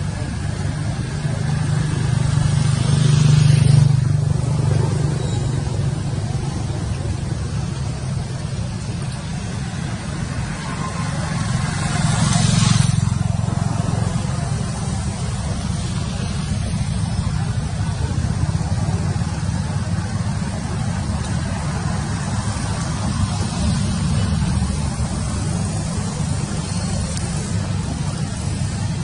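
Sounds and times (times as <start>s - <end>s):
traffic rumble: 0.0s - 29.0s
vehicles passing by: 0.0s - 29.0s.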